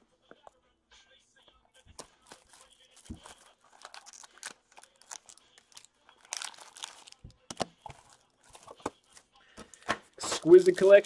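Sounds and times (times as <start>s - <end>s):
foil packaging crinkling: 1.8s - 11.0s.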